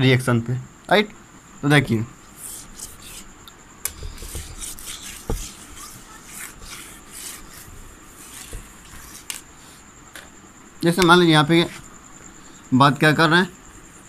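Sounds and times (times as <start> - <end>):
cloth wiping a whiteboard: 2.3 - 3.3, 3.9 - 9.9, 11.6 - 11.9.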